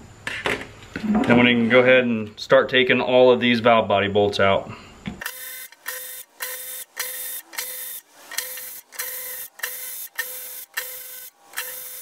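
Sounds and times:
power tool bursts on bolts: 0:05.2 - 0:12.0.

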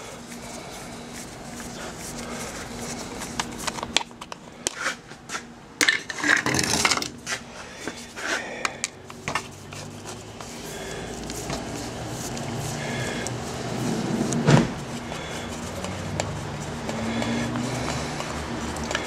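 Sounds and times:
tool rattle: 0:05.8 - 0:07.2.

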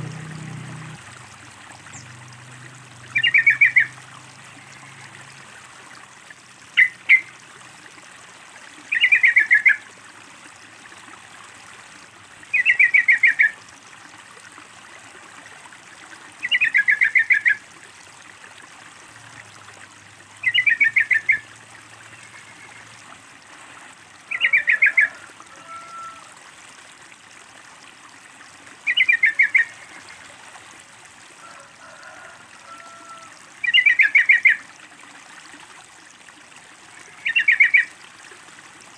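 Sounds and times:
water trickling: 0:00.0 - 0:38.9
bulbul song: 0:03.0 - 0:04.0, 0:06.8 - 0:07.3, 0:08.9 - 0:09.8, 0:12.5 - 0:13.6, 0:16.4 - 0:17.6, 0:20.4 - 0:21.5, 0:28.9 - 0:29.9, 0:33.6 - 0:34.6, 0:37.2 - 0:38.0.

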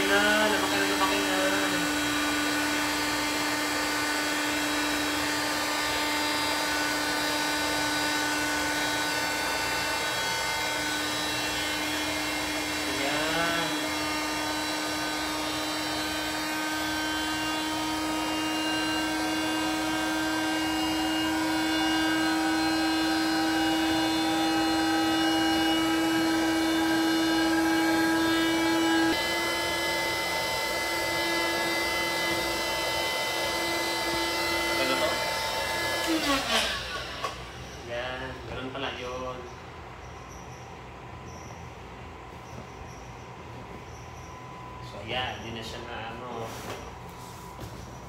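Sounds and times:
electric air pump running: 0:00.0 - 0:48.0.

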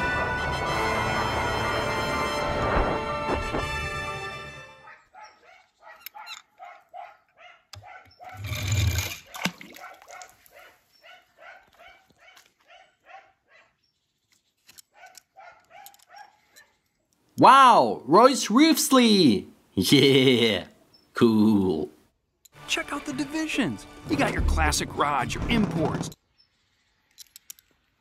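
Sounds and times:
dog yapping: 0:04.8 - 0:08.4, 0:09.8 - 0:13.7, 0:14.9 - 0:16.4.

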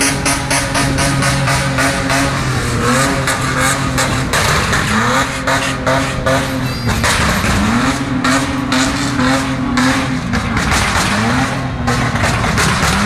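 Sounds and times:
car engines in traffic: 0:00.0 - 0:13.0
engines revving: 0:00.0 - 0:13.0
sharp clicks and knocks: 0:06.3 - 0:13.0.

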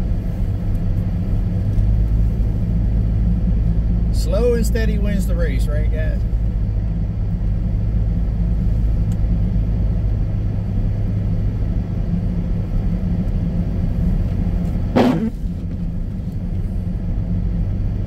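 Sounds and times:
car driving low rumble: 0:00.0 - 0:18.0
short sharp sound: 0:15.0 - 0:15.4.

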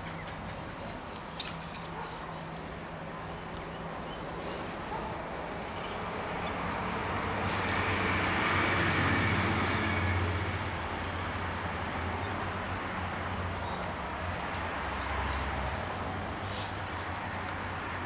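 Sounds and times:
vehicle passing by: 0:04.3 - 0:18.0.

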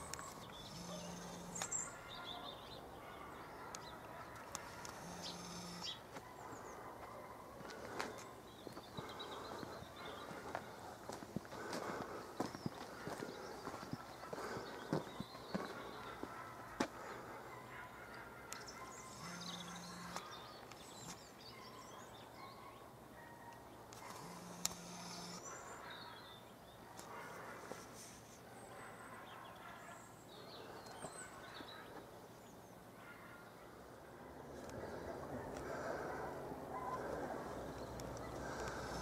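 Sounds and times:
small birds chirping: 0:00.0 - 0:23.0, 0:34.5 - 0:39.0.

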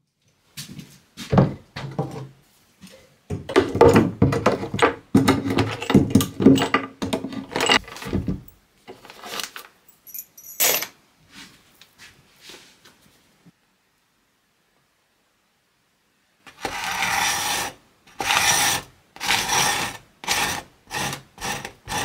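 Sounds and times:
clattering knocks and scraping: 0:01.3 - 0:09.8.

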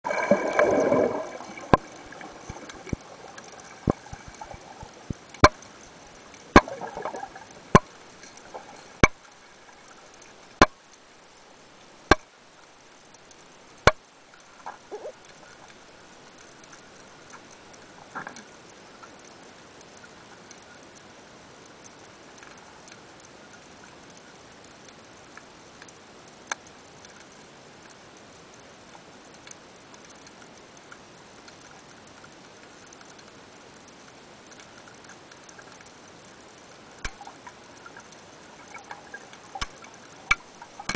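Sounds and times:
water splash and bubbling: 0:00.0 - 0:21.1, 0:31.6 - 0:40.9
faint underwater hiss: 0:00.0 - 0:40.9
sharp underwater clicks: 0:00.1 - 0:28.0, 0:29.3 - 0:40.9.

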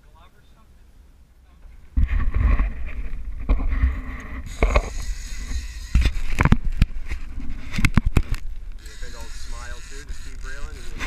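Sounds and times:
wind rumble on microphone: 0:01.7 - 0:08.8.

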